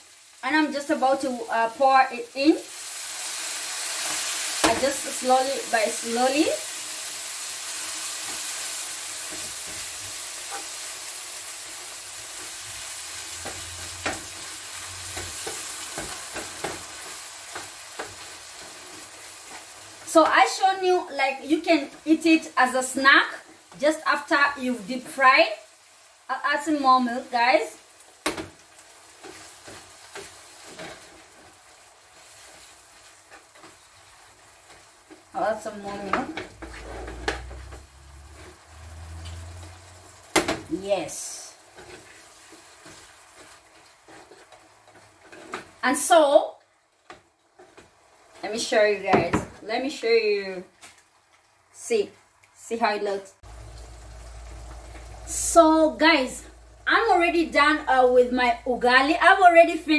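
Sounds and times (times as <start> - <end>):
fish sizzling in a frying pan: 0.0 - 59.9
wooden spoon scraping a pan: 29.2 - 31.6, 32.2 - 40.2, 41.7 - 45.8.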